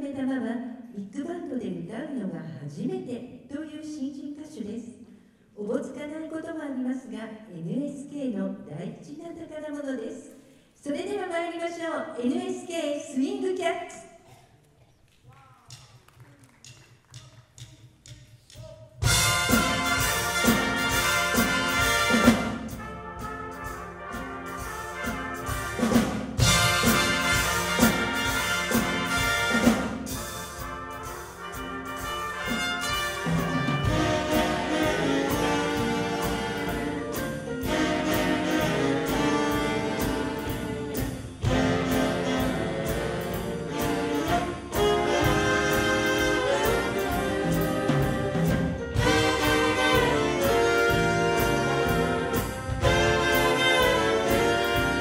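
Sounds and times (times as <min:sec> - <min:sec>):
big band jazz: 0:19.0 - 0:55.0.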